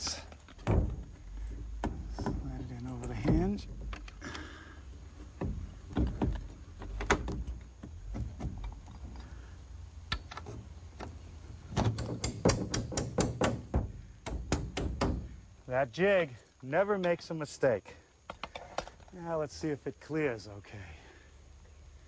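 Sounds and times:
knocks and clicks of wood and metal: 0:00.3 - 0:04.5, 0:05.2 - 0:09.4, 0:10.1 - 0:15.4, 0:18.3 - 0:19.2.

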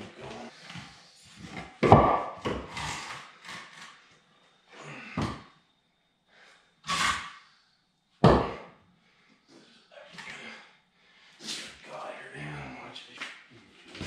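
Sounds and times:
wooden blocks thudding on concrete: 0:01.4 - 0:03.2, 0:05.2 - 0:05.4, 0:08.2 - 0:08.7.

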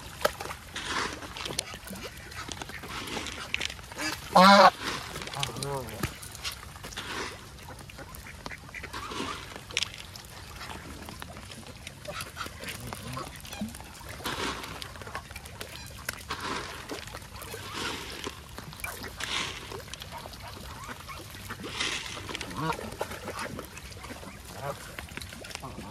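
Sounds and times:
ducks quacking: 0:00.8 - 0:06.2, 0:07.0 - 0:09.7, 0:11.9 - 0:25.0
geese honking: 0:02.2 - 0:05.9.

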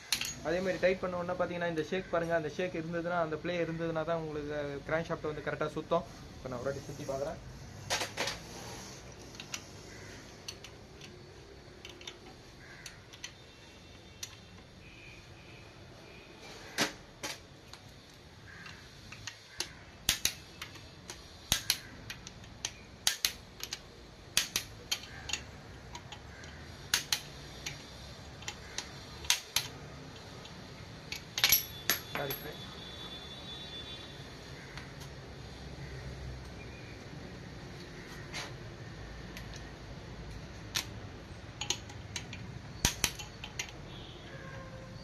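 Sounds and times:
torque wrench metallic clicks: 0:09.2 - 0:13.4, 0:18.6 - 0:32.5, 0:40.3 - 0:43.8.

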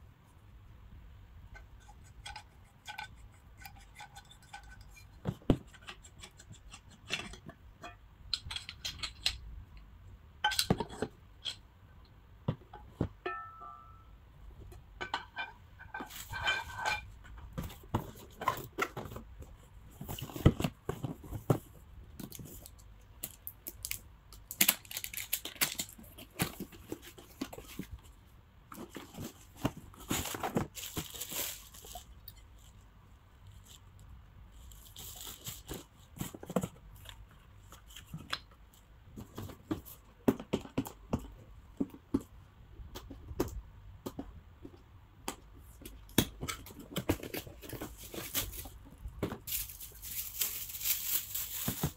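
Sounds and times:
boxes and pan knocking and scraping: 0:01.5 - 0:09.4, 0:10.4 - 0:11.6, 0:12.4 - 0:14.0, 0:14.6 - 0:22.7, 0:25.6 - 0:32.6, 0:34.8 - 0:38.4, 0:39.0 - 0:51.9
plastic wrap crinkling and tearing: 0:23.2 - 0:27.8, 0:29.0 - 0:32.4, 0:49.4 - 0:51.9
cardboard packaging handled: 0:28.7 - 0:32.4, 0:46.4 - 0:51.9.

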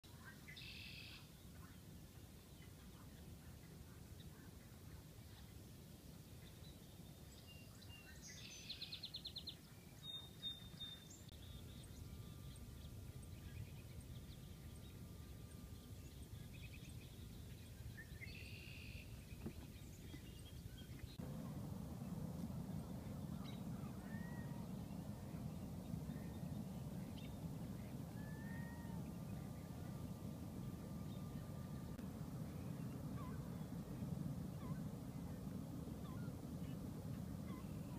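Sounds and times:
low outdoor noise: 0:00.0 - 0:37.9
bird calls: 0:22.1 - 0:32.0, 0:32.6 - 0:37.9.

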